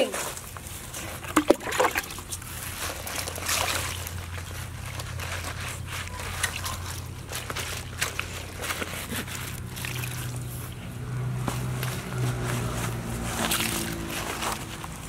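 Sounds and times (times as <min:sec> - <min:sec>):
wet scrubbing on fish skin: 0:01.0 - 0:10.8.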